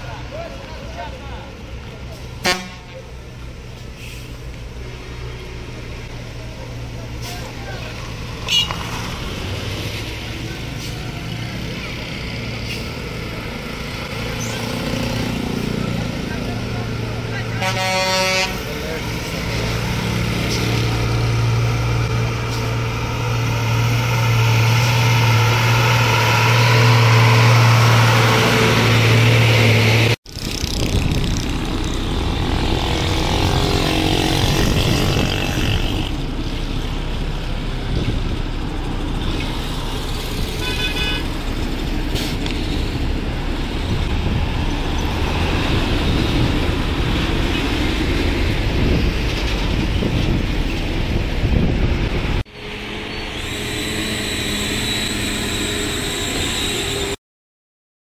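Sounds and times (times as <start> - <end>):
bus engines running: 0.0 - 57.2
traffic engines and tyres: 0.0 - 57.2.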